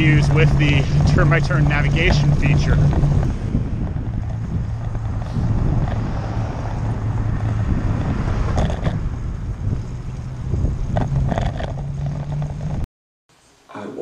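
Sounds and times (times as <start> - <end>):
constant hum: 0.0 - 6.1
wind buffeting microphone: 0.0 - 12.8.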